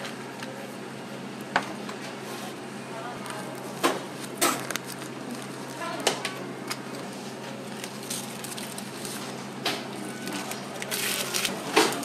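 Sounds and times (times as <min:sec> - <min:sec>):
parchment paper rustling and crackling: 0:03.2 - 0:12.0.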